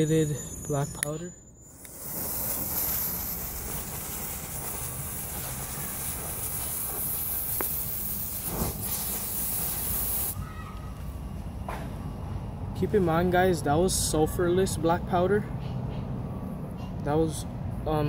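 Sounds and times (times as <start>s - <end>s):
black powder burning with a hiss: 1.6s - 10.4s
powder puff: 1.7s - 10.4s.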